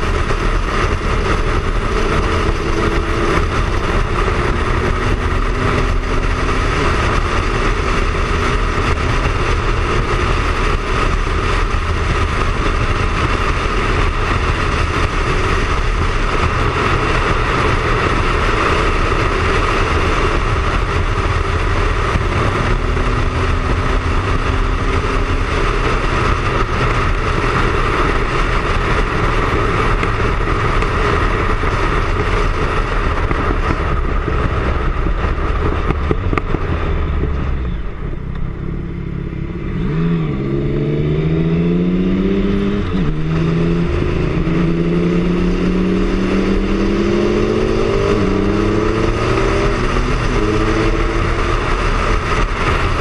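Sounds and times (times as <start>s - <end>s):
loud wind rush: 0.0s - 53.0s
motorcycle engine accelerating: 0.0s - 53.0s.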